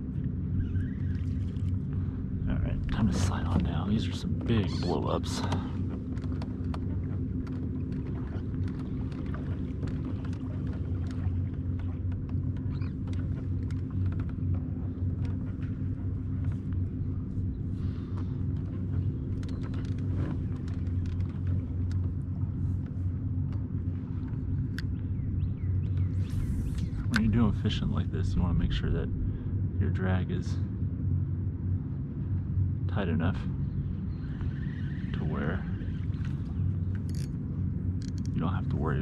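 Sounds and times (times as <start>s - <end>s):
faint hum: 0.0s - 39.0s
low rumble: 0.0s - 39.0s
light clicks and taps: 5.4s - 15.8s, 18.1s - 25.0s.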